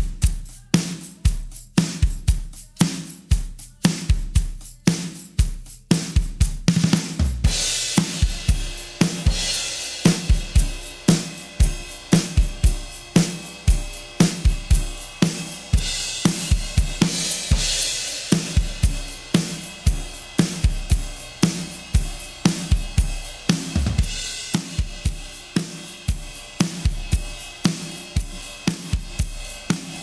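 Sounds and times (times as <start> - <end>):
drum kit beat: 0.0 - 30.0
cymbal crashes: 7.3 - 30.0.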